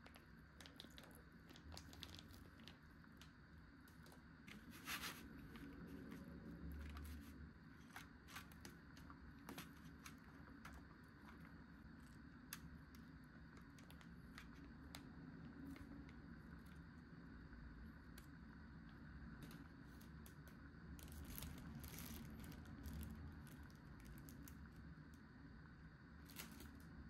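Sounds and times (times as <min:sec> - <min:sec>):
plastic packaging clicks and rustles: 0:00.0 - 0:03.3, 0:19.4 - 0:24.7, 0:26.3 - 0:26.8.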